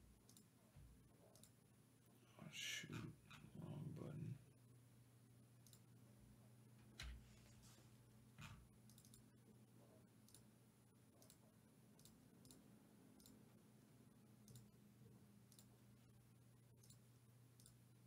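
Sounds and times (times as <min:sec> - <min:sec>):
steady low hum: 0:00.0 - 0:18.0
faint clicks: 0:00.2 - 0:00.5, 0:01.3 - 0:01.6, 0:05.6 - 0:05.9, 0:08.4 - 0:09.2, 0:11.2 - 0:11.4, 0:14.4 - 0:14.7, 0:15.5 - 0:15.7, 0:16.8 - 0:17.0, 0:17.6 - 0:17.8.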